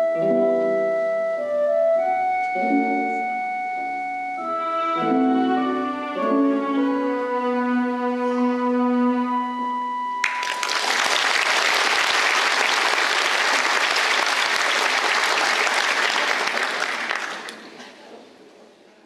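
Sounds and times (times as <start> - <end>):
audience applause: 10.2 - 17.9.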